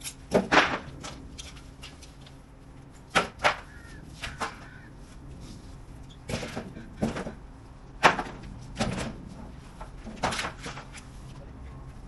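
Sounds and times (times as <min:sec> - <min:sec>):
sharp knocks and bangs: 0:00.3 - 0:01.2, 0:08.0 - 0:09.2.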